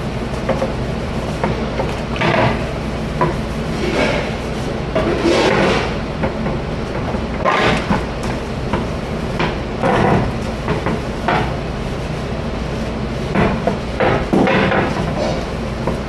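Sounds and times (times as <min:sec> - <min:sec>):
machine hum: 0:00.0 - 0:16.0
dishes and racks clattering: 0:01.7 - 0:08.1, 0:09.4 - 0:11.6, 0:13.3 - 0:16.0
bursts of rushing noise: 0:03.6 - 0:06.0.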